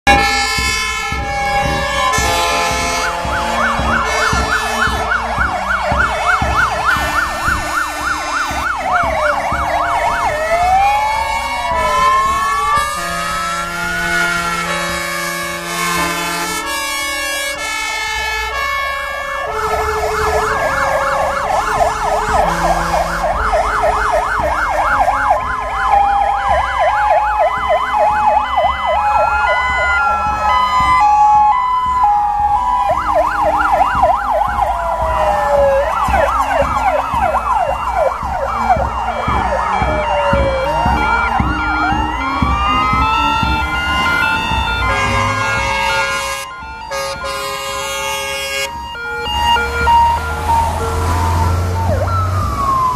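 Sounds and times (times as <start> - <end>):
fire engine sirens: 0.0 - 52.9
truck engines rumbling: 0.0 - 52.9
two-tone horn: 0.1 - 9.3, 11.2 - 23.8, 44.6 - 51.6.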